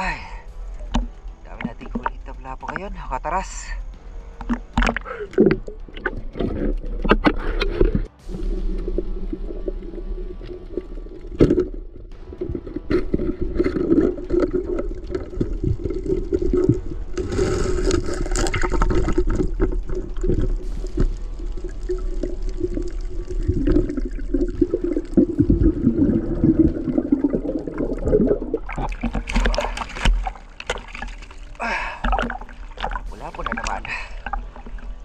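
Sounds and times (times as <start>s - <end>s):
underwater bubbling: 3.6s - 35.0s
hiss of bubbles: 7.4s - 34.8s.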